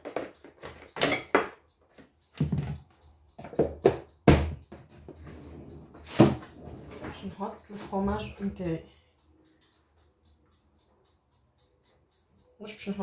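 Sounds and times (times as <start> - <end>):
plastic containers knocking on countertop: 2.4 - 2.8.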